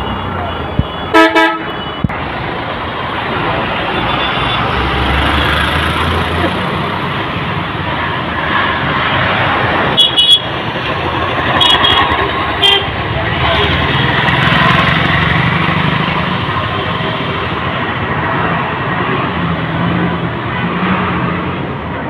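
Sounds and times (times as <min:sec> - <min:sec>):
traffic engines running: 0:00.0 - 0:22.0
car horn toots: 0:00.7 - 0:02.1, 0:10.0 - 0:10.5, 0:11.6 - 0:13.7.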